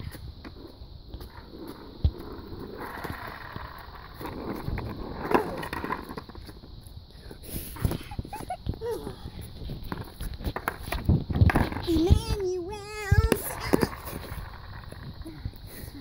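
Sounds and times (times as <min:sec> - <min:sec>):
skateboard hitting pavement: 0:00.0 - 0:06.8, 0:09.4 - 0:15.3
skateboard knocking: 0:00.0 - 0:06.8, 0:07.8 - 0:15.3
skateboard wheels rolling on asphalt: 0:00.0 - 0:16.0.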